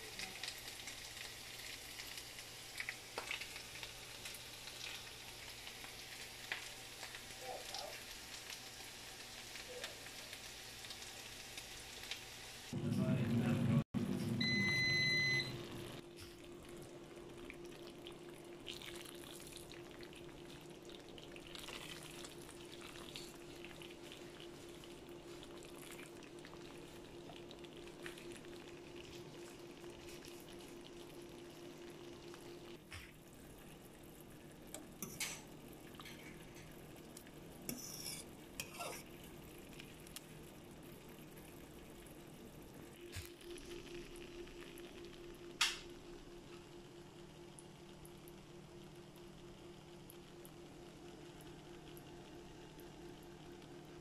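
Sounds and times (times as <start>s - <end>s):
sauce sizzling in a frying pan: 0.0s - 12.8s, 15.7s - 54.0s
loud beep: 14.4s - 15.6s
spatula scraping and tapping: 37.7s - 38.9s.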